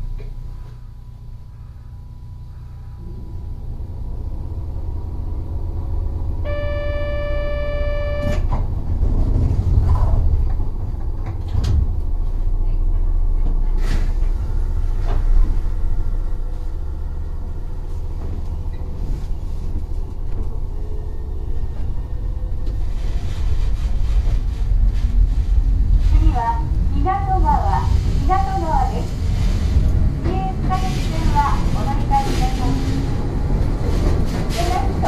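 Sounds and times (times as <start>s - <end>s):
train rumbling low: 0.0s - 35.0s
steady electronic tone: 6.4s - 8.4s.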